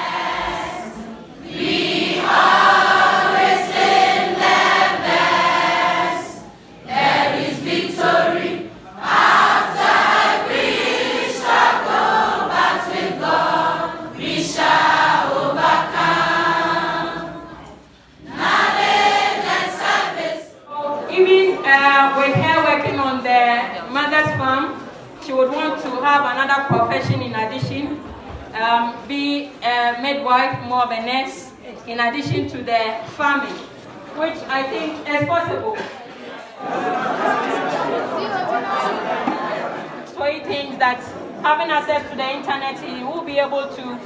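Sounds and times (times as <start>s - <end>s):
choir singing: 0.0s - 20.6s.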